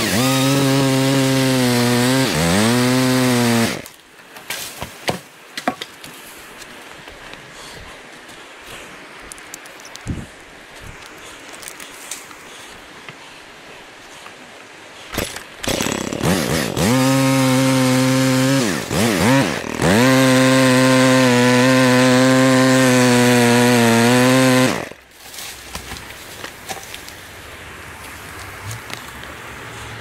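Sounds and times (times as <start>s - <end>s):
pole saw motor cutting: 0.0s - 3.8s, 15.2s - 25.0s.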